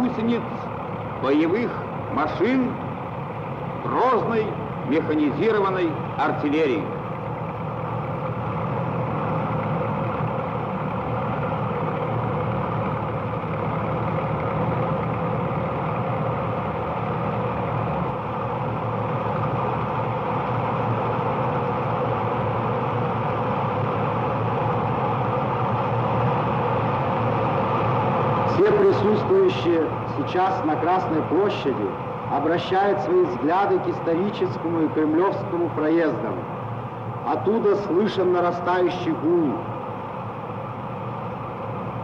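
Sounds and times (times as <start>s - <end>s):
drone of military vehicle engines: 0.0s - 42.0s.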